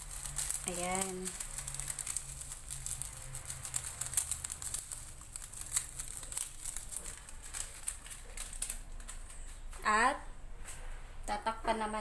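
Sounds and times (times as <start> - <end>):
foil sachet crinkling: 0.0 - 9.8.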